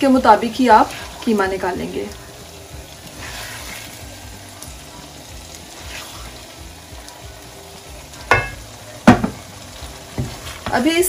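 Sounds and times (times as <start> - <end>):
mince sizzling in a pan: 0.0 - 11.0
wooden spoon scraping: 3.1 - 4.0, 5.7 - 6.5.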